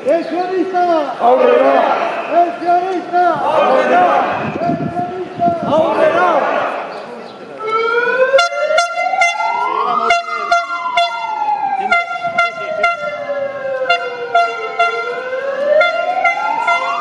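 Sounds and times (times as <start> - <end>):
siren wailing: 7.6 - 17.0
horn toots: 13.9 - 15.2.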